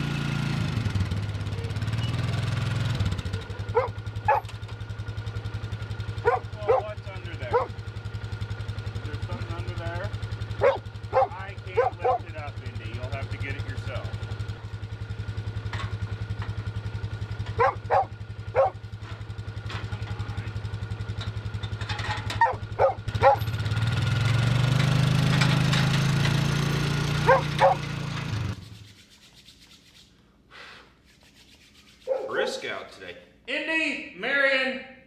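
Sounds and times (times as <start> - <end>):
vehicle engine idling: 0.0 - 28.6
dog barking: 3.7 - 4.5, 6.2 - 7.8, 10.6 - 12.3, 17.6 - 18.8, 22.4 - 23.5, 27.2 - 27.9, 32.1 - 32.8.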